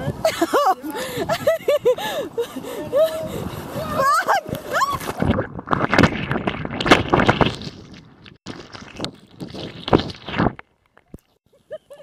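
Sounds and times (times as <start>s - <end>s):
churning water underwater: 3.4s - 11.3s.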